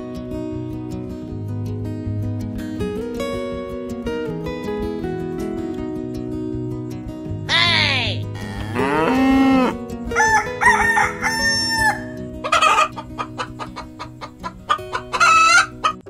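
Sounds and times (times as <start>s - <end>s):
background music: 0.0s - 16.0s
hen clucking: 8.5s - 16.0s
rooster crowing: 8.8s - 13.0s.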